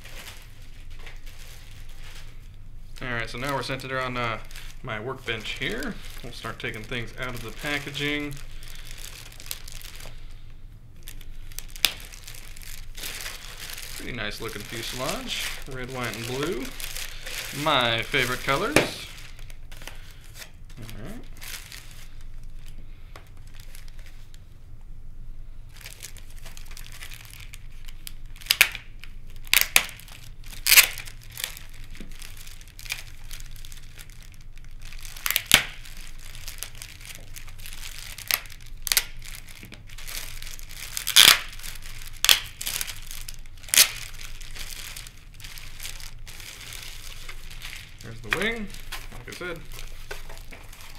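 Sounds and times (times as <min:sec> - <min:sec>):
plastic bags crinkling: 0:00.0 - 0:24.4, 0:25.7 - 0:50.9.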